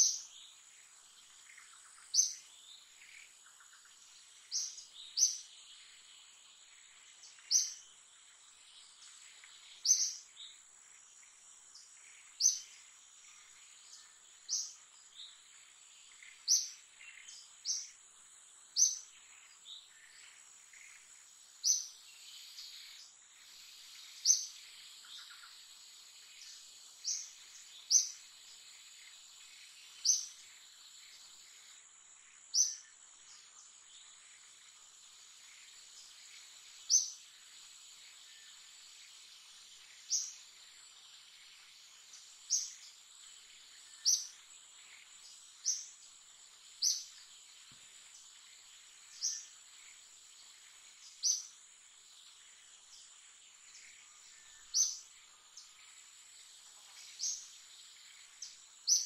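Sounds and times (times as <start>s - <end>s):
high insect drone: 0.0s - 59.0s.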